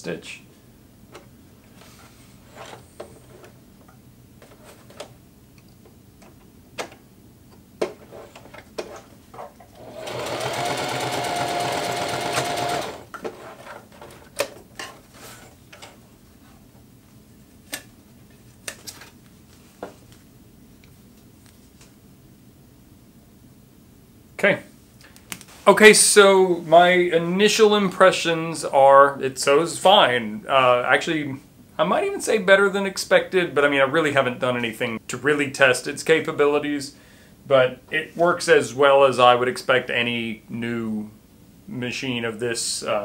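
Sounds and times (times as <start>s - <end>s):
sewing machine stitching: 9.7s - 14.2s.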